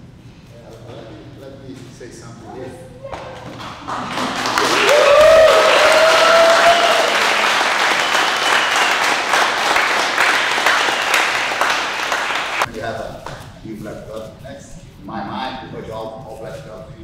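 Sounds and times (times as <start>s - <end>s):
crowd cheering: 3.1s - 12.7s
people clapping: 3.1s - 13.4s.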